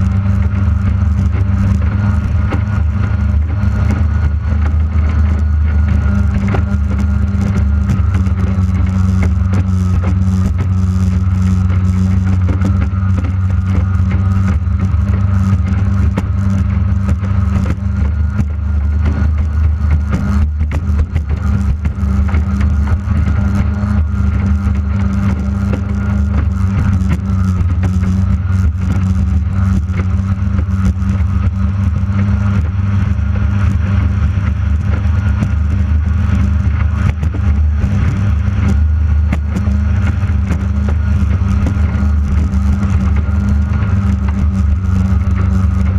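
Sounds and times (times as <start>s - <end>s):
outboard racing engine running hard: 0.0s - 45.9s.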